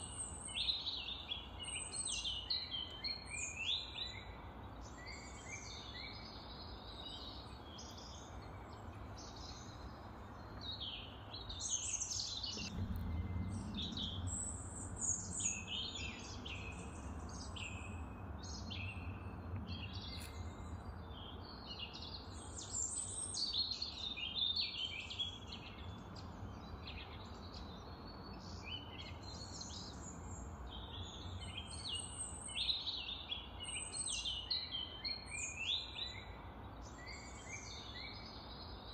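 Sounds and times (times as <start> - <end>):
small birds chirping and singing: 0.0 - 38.9
steady background noise: 1.3 - 32.5
low rumble: 12.4 - 21.0.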